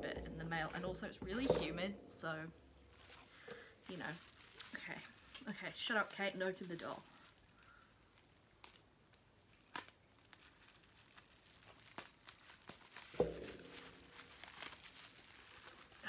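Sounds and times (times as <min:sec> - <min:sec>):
soft thump: 0:00.0 - 0:02.3, 0:13.2 - 0:14.2
packaging crinkling: 0:02.9 - 0:16.0.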